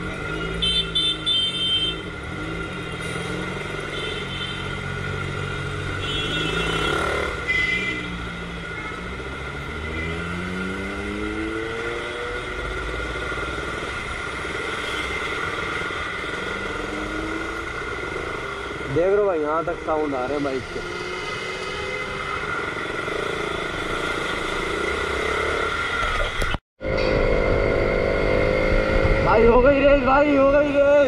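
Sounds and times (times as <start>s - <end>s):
motorcycle revving and accelerating: 0.0s - 1.3s, 1.9s - 31.0s
traffic noise: 0.0s - 31.0s
vehicle horn toots: 6.0s - 8.2s.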